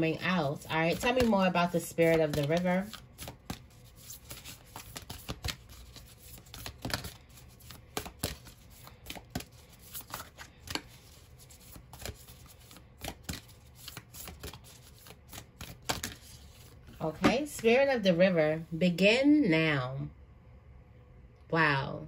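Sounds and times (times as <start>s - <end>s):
cards being shuffled by hand: 0.1s - 17.7s.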